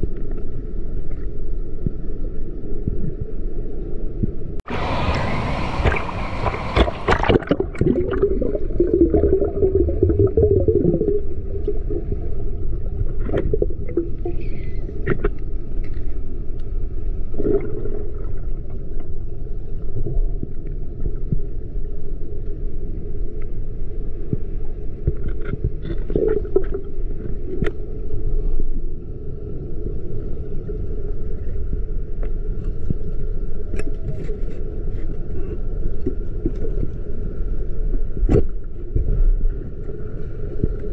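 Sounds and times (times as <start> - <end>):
underwater river rush: 0.0 - 40.9
underwater knocks and scrapes: 5.8 - 16.7, 24.2 - 27.8, 32.2 - 37.2, 38.0 - 40.9.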